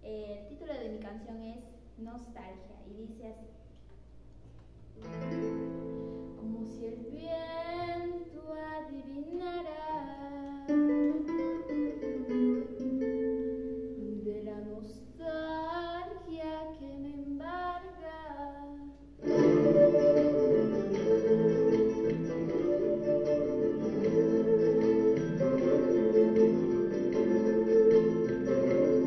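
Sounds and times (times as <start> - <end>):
instrumental accompaniment: 4.4 - 8.7, 10.4 - 14.2, 19.1 - 29.0
girl singing: 6.4 - 12.0, 13.9 - 26.5.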